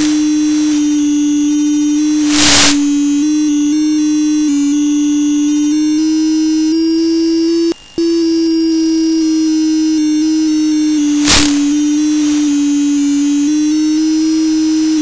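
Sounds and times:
burst of hiss: 0.0s - 3.6s, 10.5s - 13.8s
electronic tone stepping in pitch: 0.0s - 15.0s.

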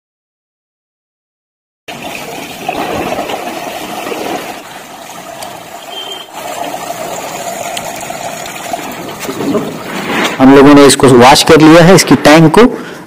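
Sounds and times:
water splashing onto concrete: 1.9s - 10.4s.

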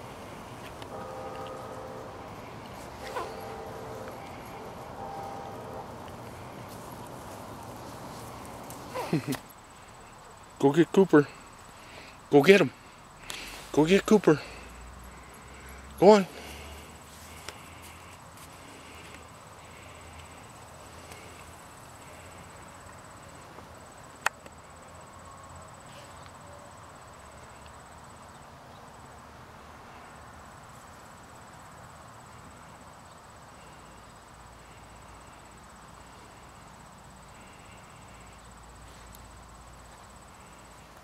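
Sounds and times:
insects trilling: 0.0s - 41.0s.

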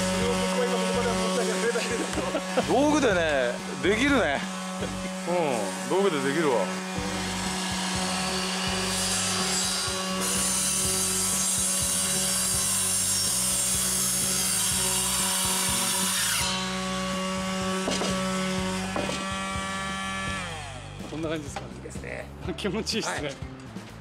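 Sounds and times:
sandpaper scratching wood: 0.0s - 16.5s
sander motor hum: 0.0s - 21.1s.

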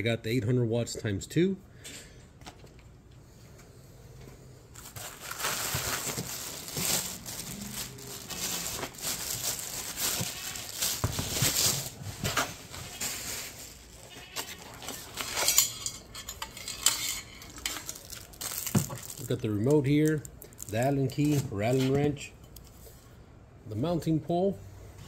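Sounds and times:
plastic wrap crinkling: 4.8s - 15.9s, 16.6s - 21.9s.

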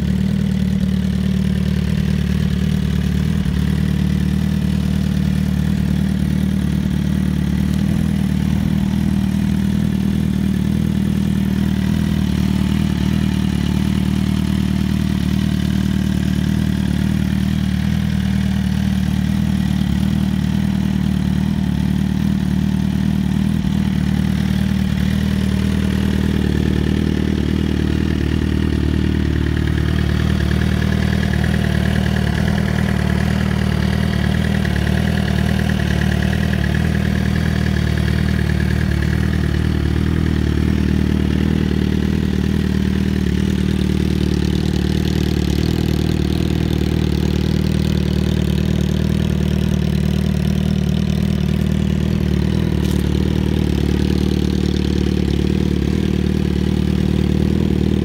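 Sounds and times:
motorcycle engine idling: 0.0s - 58.0s.

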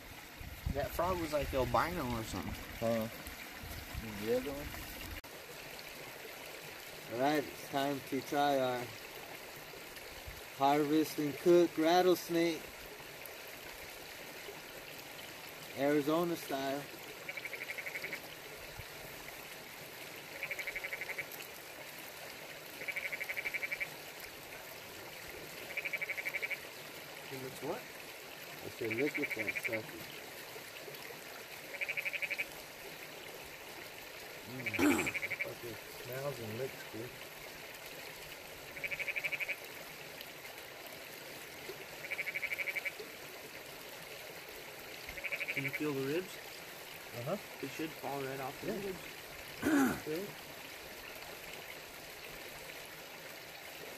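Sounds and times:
creek rushing: 0.0s - 53.9s
frog trilling: 17.3s - 18.2s, 20.4s - 21.3s, 22.8s - 23.9s, 25.7s - 26.6s, 28.9s - 29.9s, 31.7s - 32.5s, 34.5s - 35.7s, 38.8s - 39.6s, 42.0s - 43.0s, 45.2s - 45.8s, 49.6s - 50.0s
frog pulsed trills: 20.4s - 21.2s, 34.6s - 35.6s, 42.0s - 42.9s.

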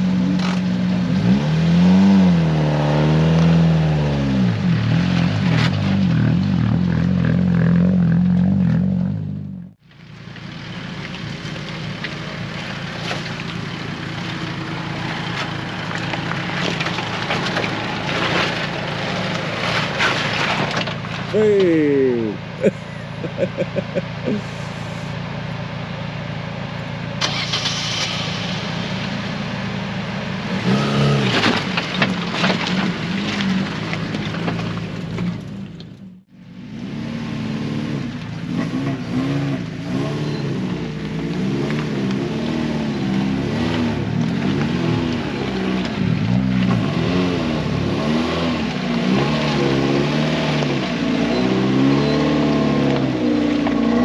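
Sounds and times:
car engine revving under load: 10.5s - 54.0s
knocks and clatters: 10.9s - 21.3s.

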